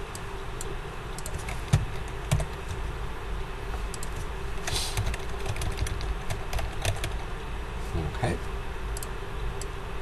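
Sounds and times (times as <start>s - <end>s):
low steady hum: 0.0s - 10.0s
computer keyboard typing: 1.2s - 2.8s, 5.0s - 7.3s.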